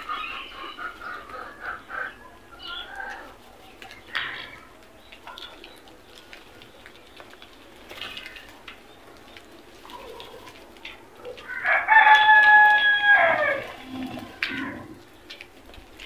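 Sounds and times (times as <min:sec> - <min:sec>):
light tapping of feeding birds: 0:02.7 - 0:13.7, 0:14.3 - 0:16.0
rooster crowing: 0:11.5 - 0:14.1.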